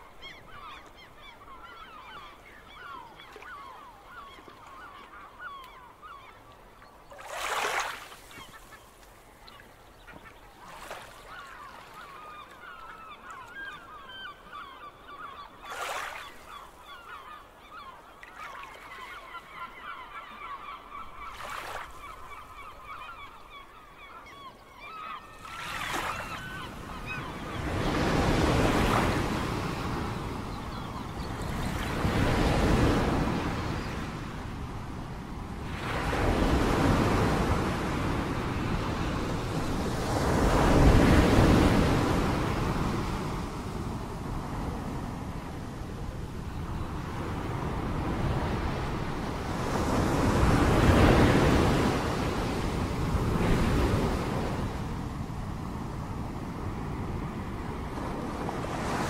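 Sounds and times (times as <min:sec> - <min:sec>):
water splashes: 0:07.1 - 0:08.4.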